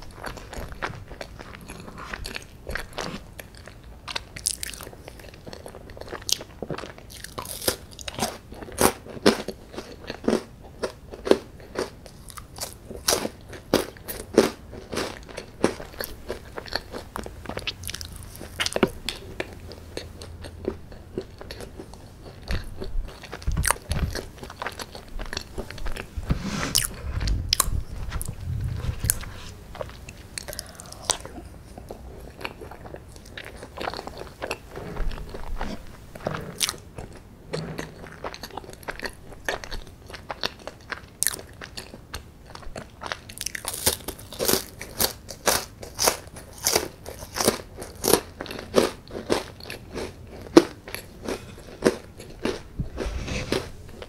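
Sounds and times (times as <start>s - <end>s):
crunching and chewing: 0.0s - 54.0s
low thumps: 23.4s - 24.2s, 25.6s - 29.9s.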